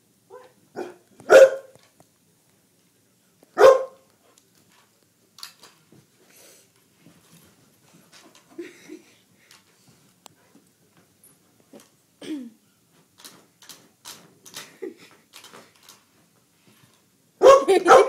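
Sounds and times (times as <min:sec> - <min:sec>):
dog barking: 0:00.3 - 0:01.7, 0:03.6 - 0:04.0, 0:17.4 - 0:18.0.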